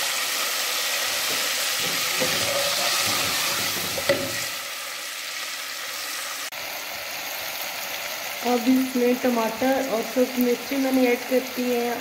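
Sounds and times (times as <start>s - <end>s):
spices sizzling in hot oil: 0.0s - 12.0s
wooden spoon knocking pot: 1.3s - 4.5s.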